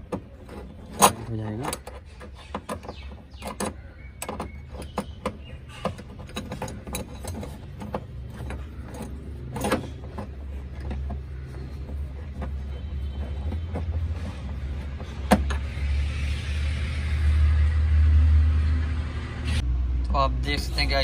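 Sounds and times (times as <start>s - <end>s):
screw clicking and scraping metal: 0.0s - 15.8s.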